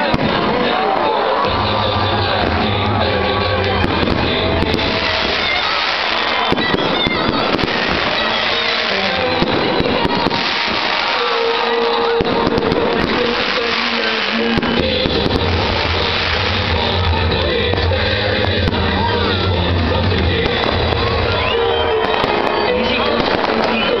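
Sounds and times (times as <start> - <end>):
fireworks bursting and crackling: 0.0 - 24.0
music: 0.0 - 24.0.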